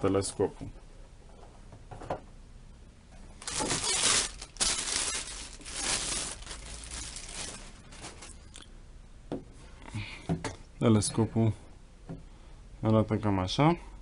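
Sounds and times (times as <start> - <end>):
plastic wrapping crinkling: 3.4 - 8.6.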